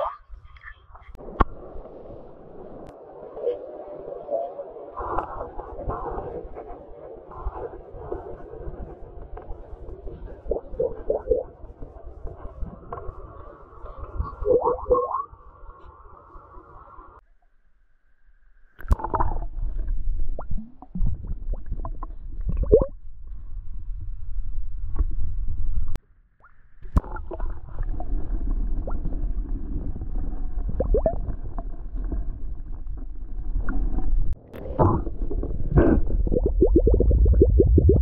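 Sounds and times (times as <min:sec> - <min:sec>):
glass flask glugging underwater: 0:14.4 - 0:15.2, 0:20.4 - 0:23.0, 0:30.7 - 0:31.4, 0:34.6 - 0:38.0
dull rumble: 0:27.2 - 0:38.0.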